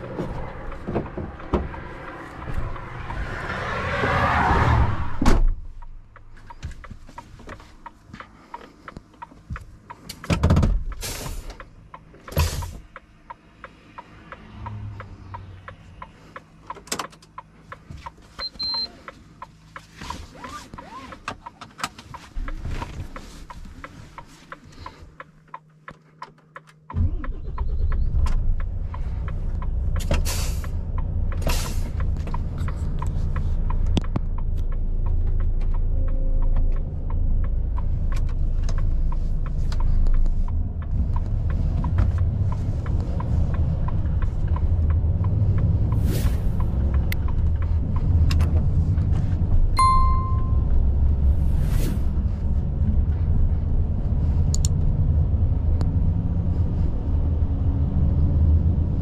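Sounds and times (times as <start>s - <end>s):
truck diesel engine rumbling: 0.0s - 20.4s, 26.9s - 59.0s
cab control clicks: 5.7s - 30.2s, 54.5s - 54.9s
short electronic beep: 18.4s - 18.9s, 49.8s - 50.7s.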